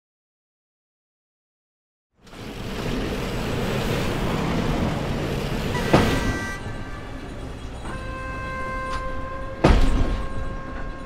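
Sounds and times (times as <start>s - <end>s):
railway yard sound: 2.2s - 11.0s
street traffic noise: 2.2s - 11.0s
metallic pitched tone: 5.7s - 11.0s.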